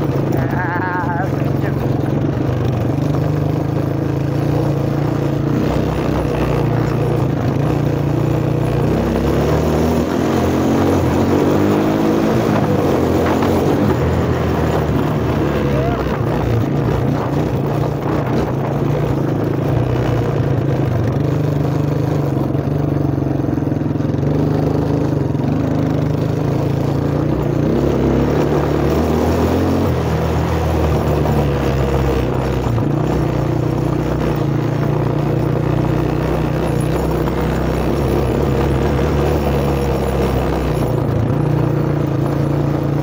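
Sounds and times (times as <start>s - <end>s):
car engine running: 0.0s - 43.0s.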